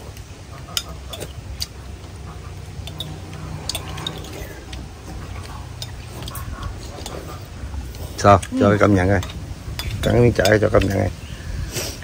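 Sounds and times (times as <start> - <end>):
low steady hum: 0.0 - 11.6
utensils clicking on ceramic bowls: 2.8 - 7.2, 9.1 - 11.1.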